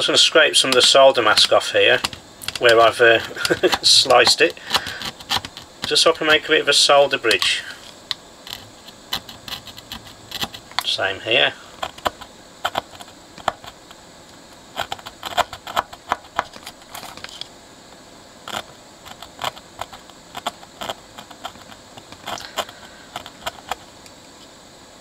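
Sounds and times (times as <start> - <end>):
blade scraping circuit board: 0.5 - 7.6, 8.4 - 10.7, 14.7 - 17.4, 18.4 - 23.9.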